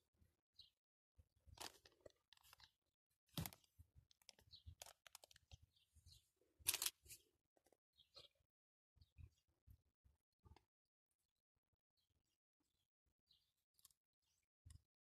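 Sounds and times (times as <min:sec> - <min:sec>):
rustling and crackling handling noise: 0:01.5 - 0:02.7, 0:03.3 - 0:05.6, 0:06.6 - 0:07.8.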